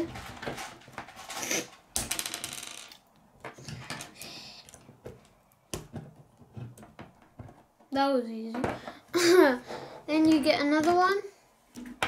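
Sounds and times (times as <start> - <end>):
plastic pieces clicking and rattling: 2.0 - 4.8.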